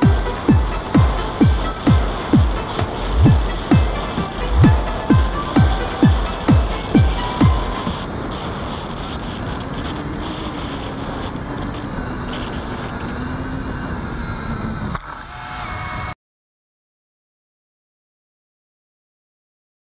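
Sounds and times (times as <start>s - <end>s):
wind rush: 0.0s - 15.0s
electric motor and propeller whine: 0.0s - 16.2s.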